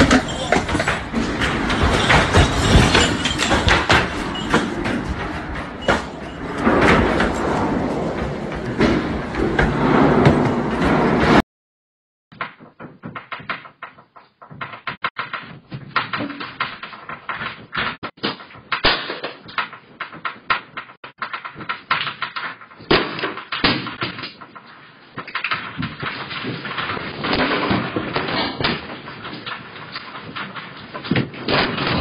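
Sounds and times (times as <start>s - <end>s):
shelves and fittings rattling: 0.0s - 11.4s.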